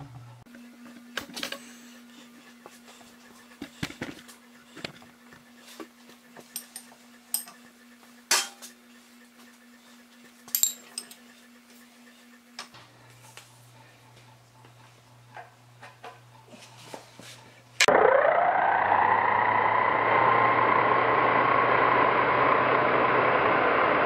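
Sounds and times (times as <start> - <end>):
steady low hum: 0.0 - 22.8
metal tools clinking and knocking: 6.5 - 7.6, 10.5 - 11.2.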